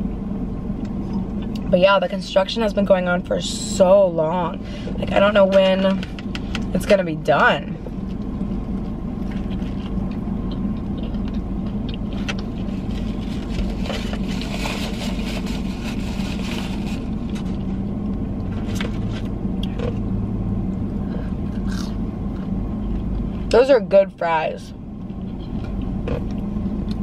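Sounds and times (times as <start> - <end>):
idling car hum: 0.0 - 27.0
paper napkin rustling: 12.6 - 17.6.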